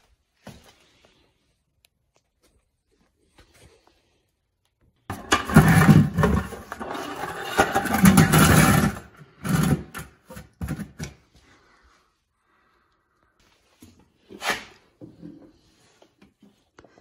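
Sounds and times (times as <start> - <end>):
plastic bucket scraping on concrete: 5.1 - 11.2.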